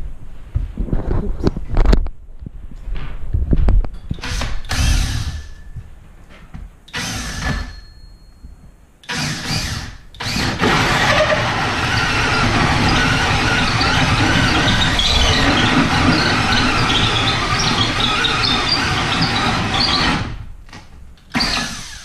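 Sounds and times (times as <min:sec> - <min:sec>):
cordless drill boring into wood: 0:04.2 - 0:05.4, 0:06.9 - 0:07.7, 0:09.1 - 0:20.4, 0:21.3 - 0:22.0.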